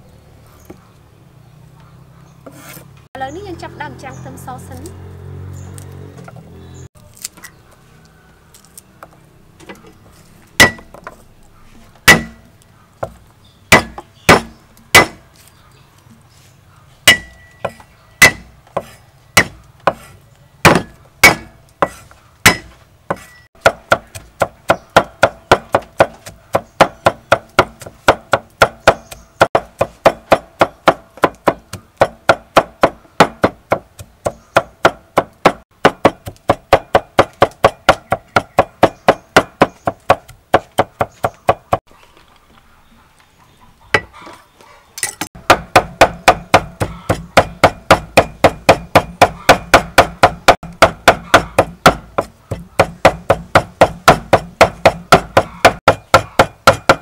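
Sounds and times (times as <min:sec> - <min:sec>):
cleaver chopping on wooden block: 0:10.6 - 0:11.0, 0:12.0 - 0:12.4, 0:13.0 - 0:15.3, 0:17.0 - 0:41.8, 0:45.3 - 0:57.0.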